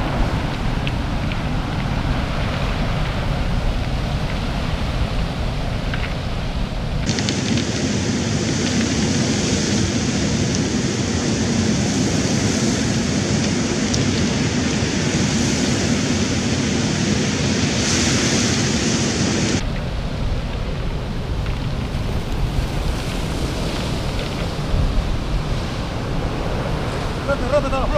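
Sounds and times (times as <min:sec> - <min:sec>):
surf breaking on pebble beach: 0:00.0 - 0:27.9.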